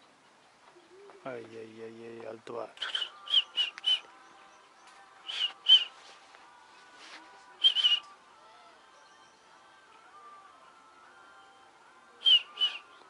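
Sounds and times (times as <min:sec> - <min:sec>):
high whistled notes: 0:02.8 - 0:04.1, 0:05.3 - 0:06.0, 0:07.6 - 0:08.1, 0:12.2 - 0:12.9.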